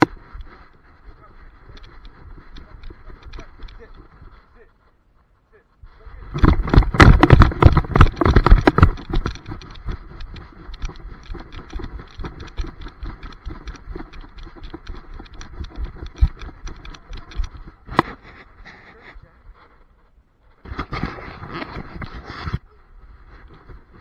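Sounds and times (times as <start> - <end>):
camera knocking: 0.0 - 0.2, 6.3 - 18.1
microphone rubbing against fur: 0.0 - 24.0.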